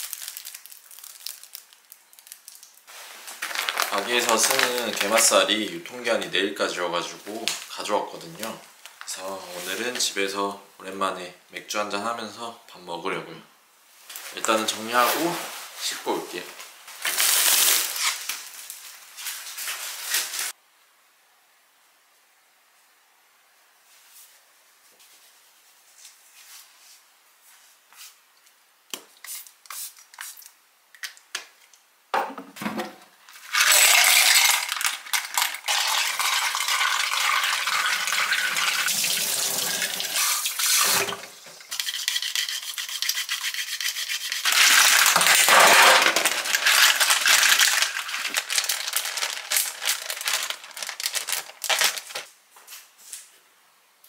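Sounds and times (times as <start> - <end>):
clam shells clattering: 33.4 - 38.2, 44.5 - 52.0
tap water running: 35.6 - 44.0
clicks and rustles: 45.1 - 52.3.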